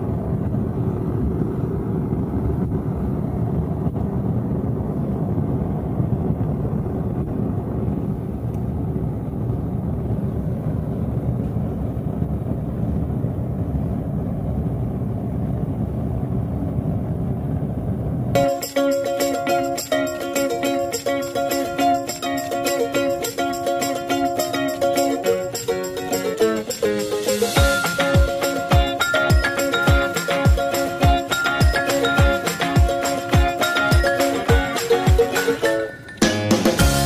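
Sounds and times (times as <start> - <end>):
burner flame rushing: 0.0 - 18.4.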